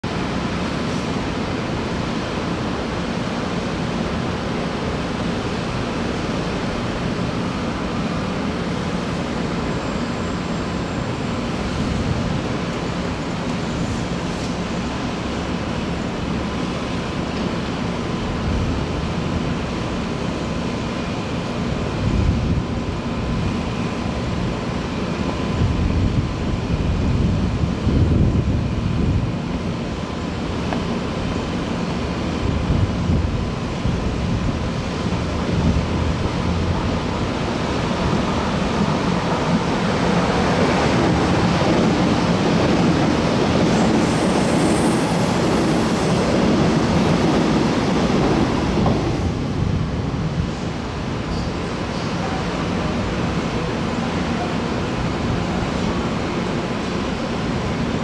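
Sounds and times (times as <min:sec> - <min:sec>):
wind buffeting microphone: 0:21.9 - 0:22.8, 0:25.5 - 0:29.8, 0:32.4 - 0:44.1, 0:46.1 - 0:51.1
distant city traffic: 0:28.9 - 0:58.0.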